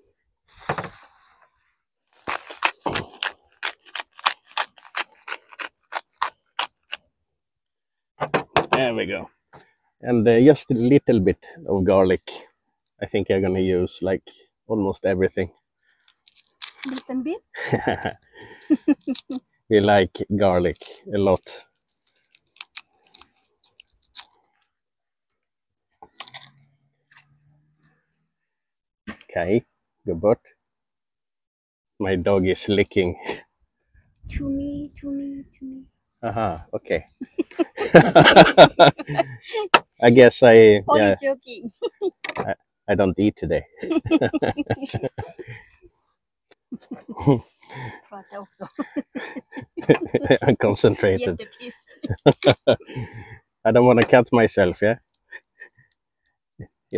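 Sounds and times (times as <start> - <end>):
garlic crackling and crunching: 2.2 - 7.0, 15.8 - 17.1, 17.9 - 19.4, 21.7 - 24.6, 26.0 - 27.3
spice grinder crunchy clicks: 2.2 - 7.0.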